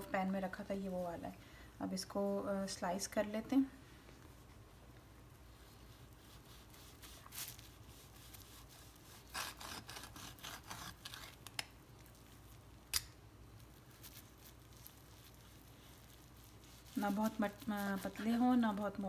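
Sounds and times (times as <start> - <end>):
knife sawing through meat: 7.9 - 11.4.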